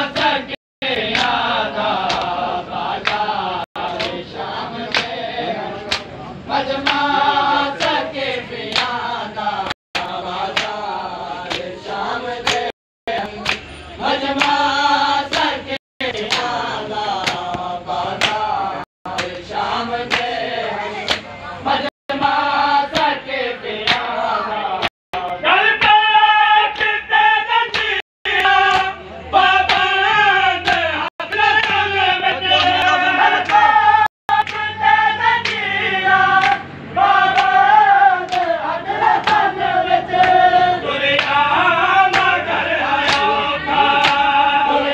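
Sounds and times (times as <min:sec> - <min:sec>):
men chanting together: 0:00.0 - 0:44.9
hands slapping chests: 0:02.0 - 0:02.4, 0:03.0 - 0:04.2, 0:04.9 - 0:05.2, 0:05.9 - 0:06.1, 0:08.7 - 0:09.0, 0:10.0 - 0:10.8, 0:12.4 - 0:12.7, 0:17.2 - 0:18.5, 0:23.8 - 0:24.1.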